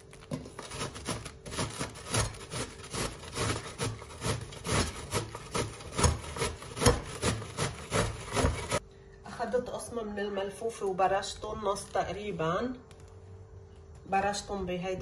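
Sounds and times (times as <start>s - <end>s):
cabbage grated on metal grater: 0.2s - 8.8s.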